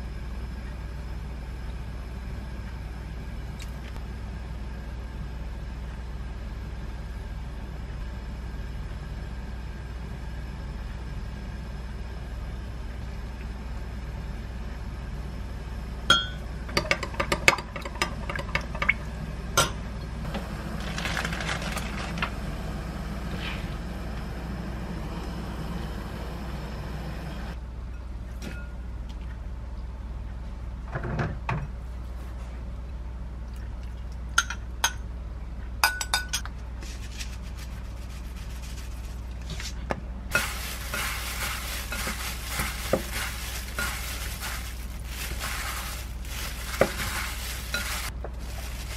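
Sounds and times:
gloved hands rustling noodles: 0:20.8 - 0:22.3, 0:37.0 - 0:39.3, 0:40.3 - 0:48.9.

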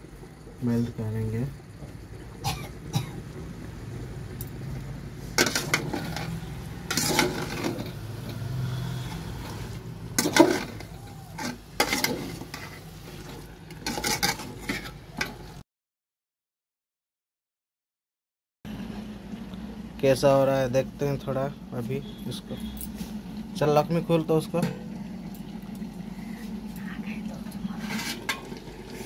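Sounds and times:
steady low hum: 0:00.0 - 0:13.6, 0:18.7 - 0:29.0
ladle scraping a metal pot: 0:05.3 - 0:09.6, 0:10.2 - 0:15.4, 0:27.6 - 0:29.0.

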